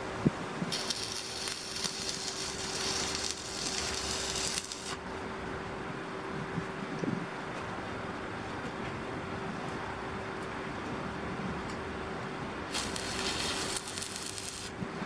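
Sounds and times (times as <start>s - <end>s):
welding arc crackling and hissing: 0.7s - 5.0s, 12.7s - 14.8s.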